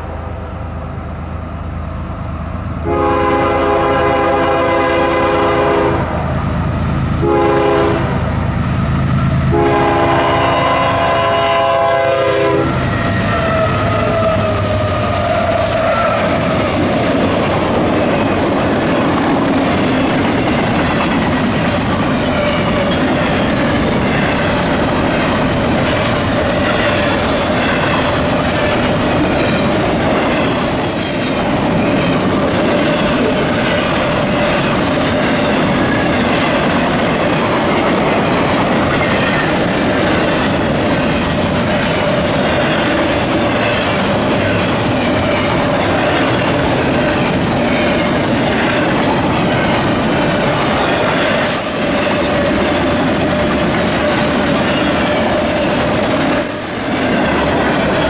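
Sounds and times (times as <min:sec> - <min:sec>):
freight train rumbling past: 0:00.0 - 0:58.0
locomotive horn: 0:02.8 - 0:06.2, 0:07.2 - 0:08.4, 0:09.5 - 0:16.4
high-pitched wheel squeal: 0:30.4 - 0:32.2.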